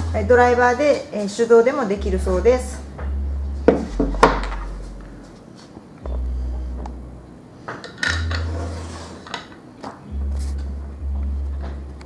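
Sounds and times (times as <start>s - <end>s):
low hum: 2.0s - 5.4s, 6.0s - 7.4s.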